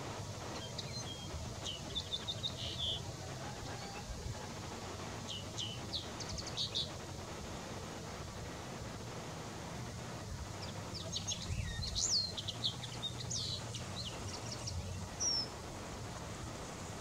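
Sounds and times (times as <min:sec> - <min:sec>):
linnet twittering song: 0:00.4 - 0:03.2, 0:05.2 - 0:07.0, 0:10.6 - 0:15.6.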